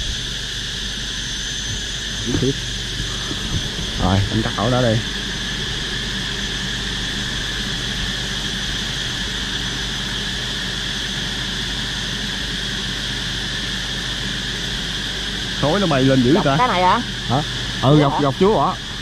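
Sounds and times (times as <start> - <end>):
high constant whine: 0.0 - 19.0
honeybee swarm droning: 1.0 - 10.6, 14.3 - 19.0.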